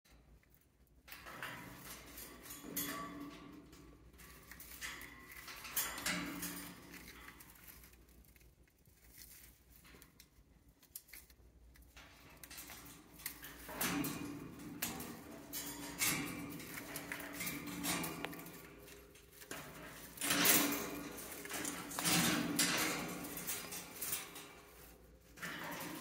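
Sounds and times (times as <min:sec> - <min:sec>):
chew toy rustling and crackling: 0:06.9 - 0:12.0.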